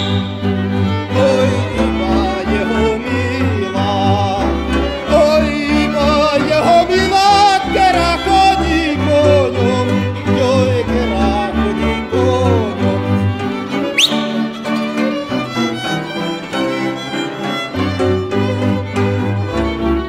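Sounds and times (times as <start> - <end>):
sustained bass notes: 0.0 - 15.8
fiddle folk music: 0.0 - 20.0.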